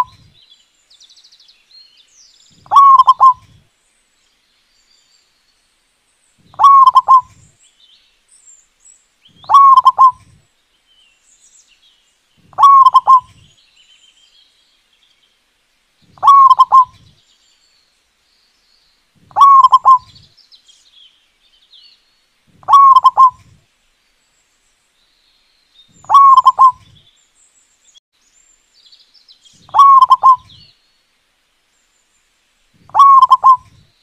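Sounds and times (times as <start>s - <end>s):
dove cooing: 0.0s - 0.3s, 2.6s - 3.6s, 6.5s - 7.5s, 9.4s - 10.4s, 12.4s - 13.5s, 16.2s - 17.1s, 19.2s - 20.2s, 22.5s - 23.6s, 26.0s - 27.0s, 29.7s - 30.6s, 32.8s - 33.8s
faint high bird chirps: 0.0s - 3.6s, 6.4s - 10.4s, 12.4s - 15.2s, 16.0s - 17.8s, 18.4s - 23.6s, 25.3s - 31.0s, 32.8s - 34.0s.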